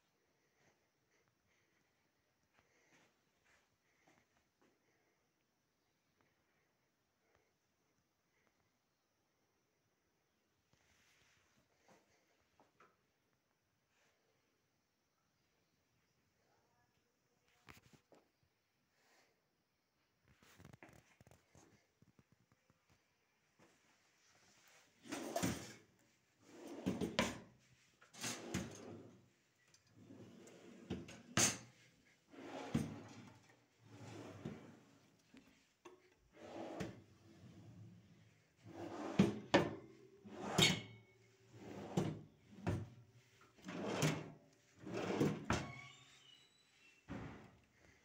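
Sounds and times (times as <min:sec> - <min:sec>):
cabinet doors and drawers opening and shutting: 0:25.0 - 0:27.5, 0:28.1 - 0:29.2, 0:29.9 - 0:35.1, 0:36.3 - 0:46.4, 0:47.1 - 0:47.6.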